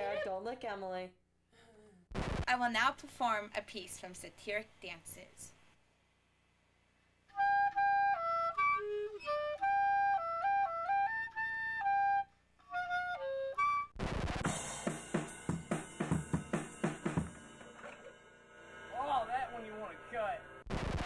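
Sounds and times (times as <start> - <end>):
clarinet solo melody: 7.3 - 14.0
drum kit with cymbals: 14.0 - 20.4.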